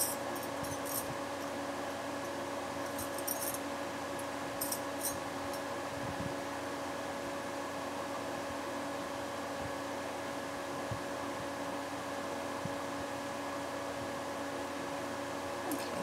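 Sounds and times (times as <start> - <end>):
light clinks: 0.0 - 1.1, 2.9 - 3.6
electric fan humming and whirring: 0.0 - 16.0.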